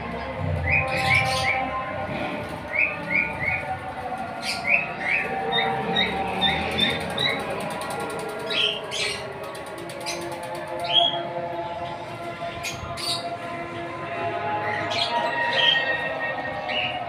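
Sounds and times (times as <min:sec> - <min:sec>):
small birds chirping and twittering: 0:00.0 - 0:17.0.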